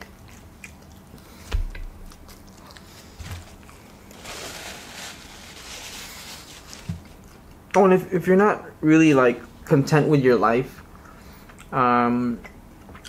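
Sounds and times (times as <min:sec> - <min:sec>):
close chewing: 0:00.0 - 0:04.2
paper napkin rustling: 0:02.9 - 0:07.3.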